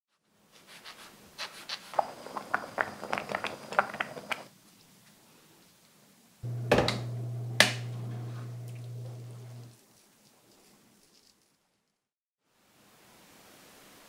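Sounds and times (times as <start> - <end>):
oven fan hum: 6.4 - 9.7.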